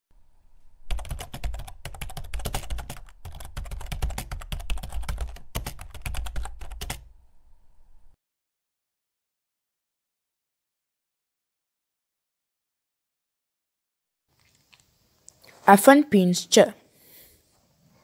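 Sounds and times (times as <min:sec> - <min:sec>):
fast irregular clicking: 0:00.9 - 0:07.0.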